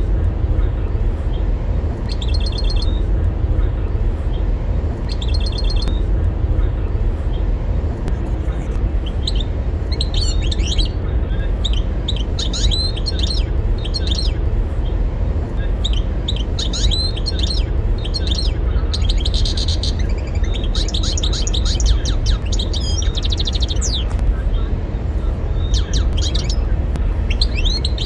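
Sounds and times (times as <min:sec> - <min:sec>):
low rumble: 0:00.0 - 0:28.0
goldfinch singing: 0:02.1 - 0:03.0, 0:05.0 - 0:06.0, 0:09.0 - 0:11.0, 0:11.6 - 0:14.4, 0:15.8 - 0:24.2, 0:25.6 - 0:28.0.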